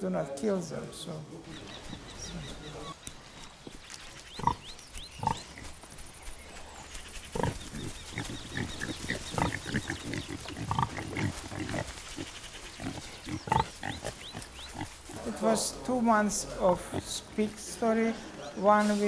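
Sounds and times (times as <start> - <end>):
pigs grunting and squealing: 4.4 - 5.7, 7.3 - 15.8, 16.4 - 17.6.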